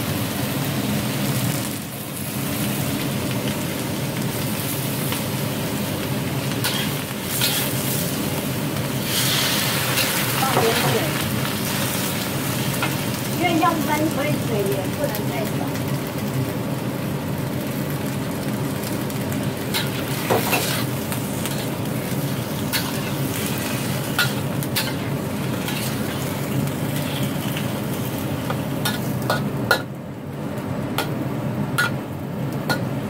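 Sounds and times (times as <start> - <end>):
food sizzling in a wok: 0.0 - 33.0
metal spatula scraping a wok: 6.6 - 8.0, 9.0 - 10.9, 19.7 - 27.7.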